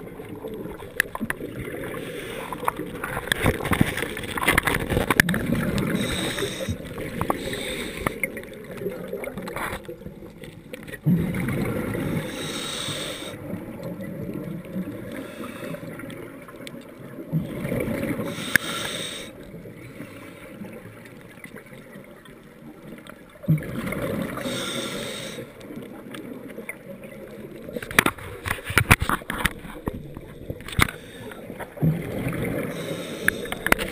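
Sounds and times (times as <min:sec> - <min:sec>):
regulator bubbles gurgling: 0:00.0 - 0:33.9
diver inhaling: 0:01.8 - 0:02.8, 0:05.7 - 0:08.4, 0:12.0 - 0:13.4, 0:15.1 - 0:15.9, 0:18.2 - 0:19.4, 0:24.3 - 0:25.6, 0:30.3 - 0:31.6, 0:32.5 - 0:33.9.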